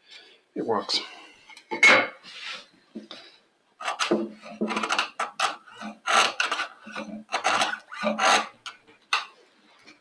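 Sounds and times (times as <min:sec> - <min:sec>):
chisel scraping wood: 0:03.8 - 0:08.8.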